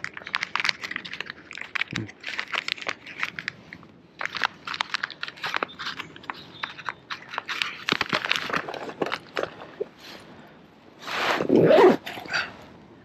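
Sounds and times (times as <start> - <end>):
plastic packet crinkling: 0.0 - 9.9.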